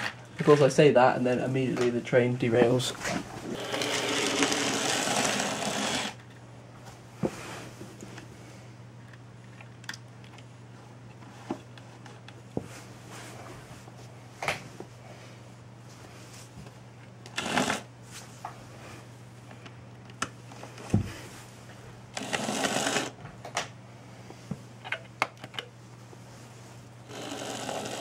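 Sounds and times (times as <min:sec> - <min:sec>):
low steady hum: 0:00.0 - 0:28.0
loud whirring: 0:03.4 - 0:06.2, 0:17.3 - 0:17.9, 0:22.2 - 0:23.2, 0:27.1 - 0:28.0.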